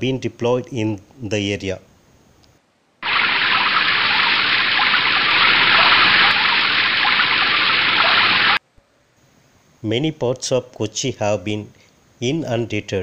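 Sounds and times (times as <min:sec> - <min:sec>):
rushing floodwater: 0:03.0 - 0:08.6.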